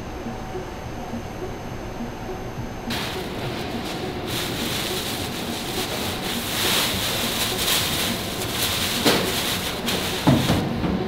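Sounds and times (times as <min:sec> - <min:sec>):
seaweed flakes pouring: 0:02.9 - 0:10.6
plastic bag rustling: 0:02.9 - 0:10.8.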